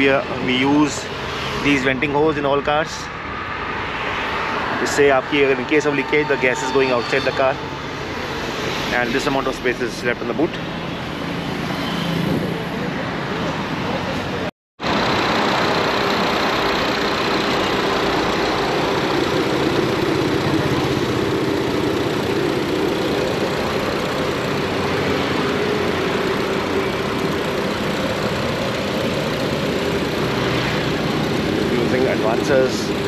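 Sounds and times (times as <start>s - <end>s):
car engine idling: 13.8s - 33.0s.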